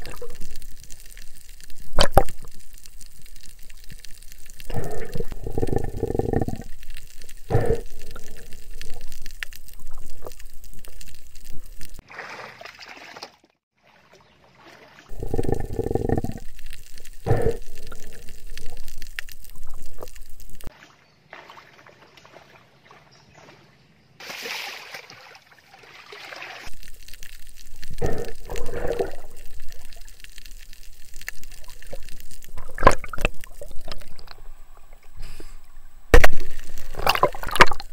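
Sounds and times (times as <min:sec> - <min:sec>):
water bubbling underwater: 0:00.0 - 0:12.0, 0:15.1 - 0:20.7, 0:26.6 - 0:37.9.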